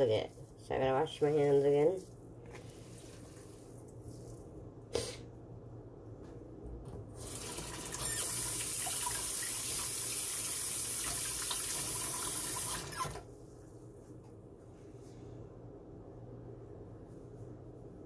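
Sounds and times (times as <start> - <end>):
tap water running: 7.2 - 13.3.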